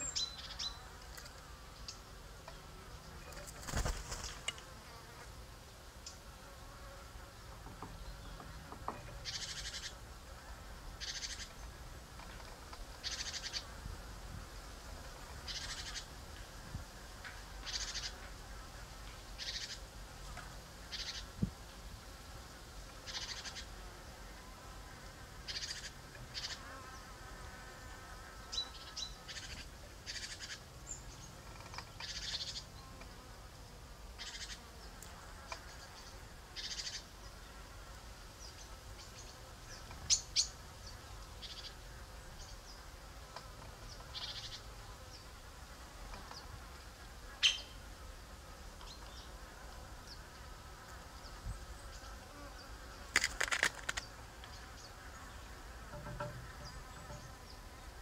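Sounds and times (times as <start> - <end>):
fly buzzing: 0.0 - 58.0
high insect chirps: 11.0 - 11.6, 35.7 - 37.2.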